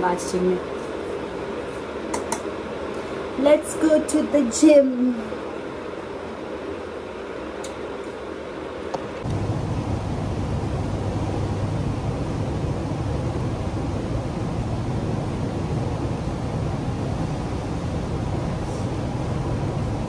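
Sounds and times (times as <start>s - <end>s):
low rumbling of moving air: 9.1s - 20.0s.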